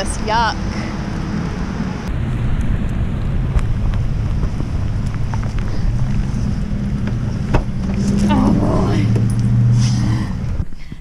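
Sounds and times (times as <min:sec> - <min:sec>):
low steady hum: 0:00.0 - 0:11.0
wind buffeting microphone: 0:00.0 - 0:11.0.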